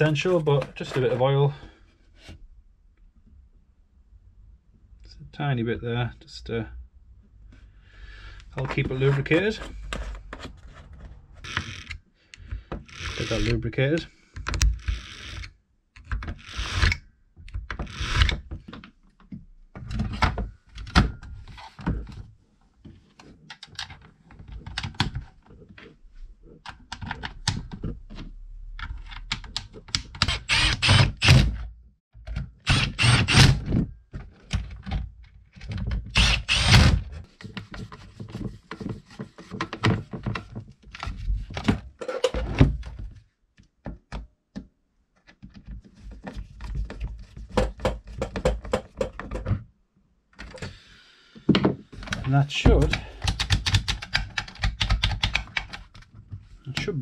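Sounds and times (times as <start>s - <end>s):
scraping handling noises: 0.0s - 2.4s, 8.4s - 11.9s.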